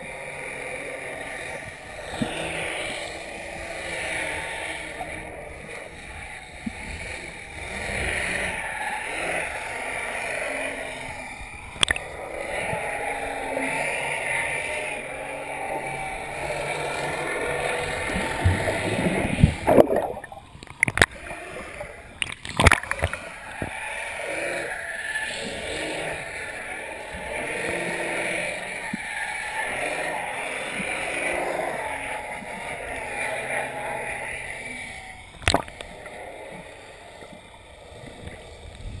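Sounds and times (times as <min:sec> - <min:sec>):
muffled rushing water underwater: 0:00.0 - 0:39.0
sharp knocks or splashes: 0:19.4 - 0:21.1.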